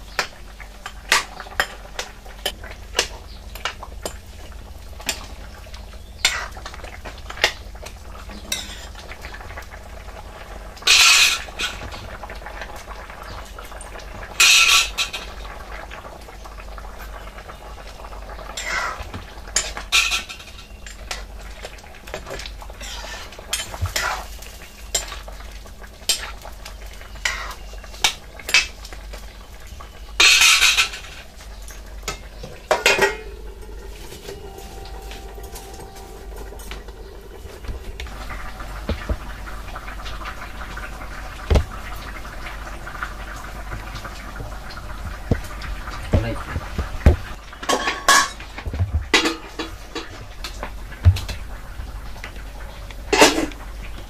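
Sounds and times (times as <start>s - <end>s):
ladle scraping pan side: 22.8s - 24.3s.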